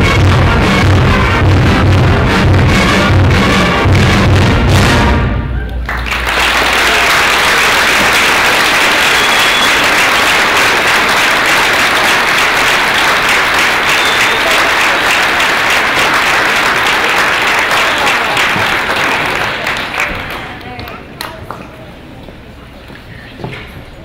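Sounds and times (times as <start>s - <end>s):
audience applauding: 5.7s - 21.6s.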